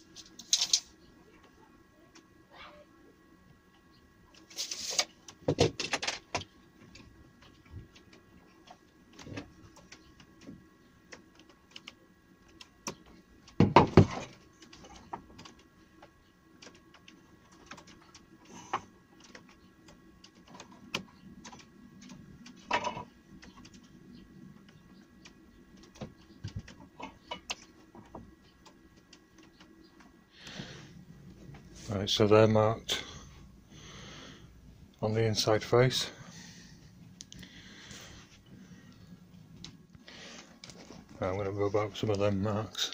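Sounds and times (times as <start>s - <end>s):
faint steady hum: 0.0s - 42.9s
tools clattering: 0.2s - 0.9s.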